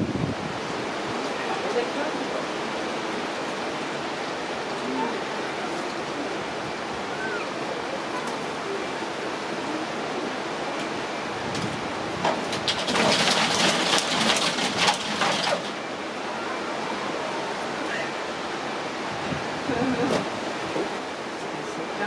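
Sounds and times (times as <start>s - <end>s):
monkey scrambling on metal roof: 12.2s - 15.8s.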